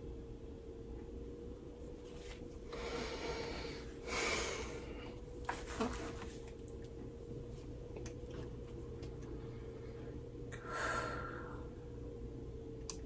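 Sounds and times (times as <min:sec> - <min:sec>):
electrical hum: 0:00.0 - 0:13.0
person breathing: 0:02.6 - 0:05.3, 0:09.4 - 0:11.8.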